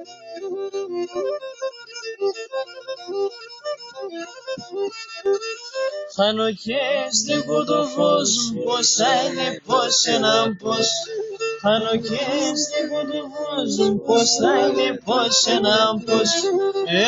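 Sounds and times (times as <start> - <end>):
bowed string instrument: 0.0 - 6.2, 7.1 - 17.0
man singing: 6.2 - 17.0.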